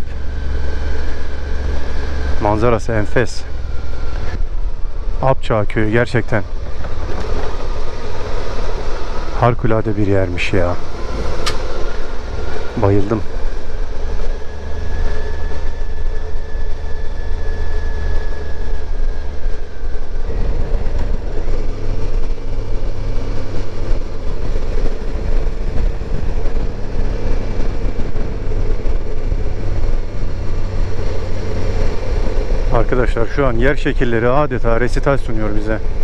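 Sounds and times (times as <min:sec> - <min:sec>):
wind noise on microphone: 0:10.8 - 0:32.8
motorcycle engine running: 0:10.8 - 0:34.7.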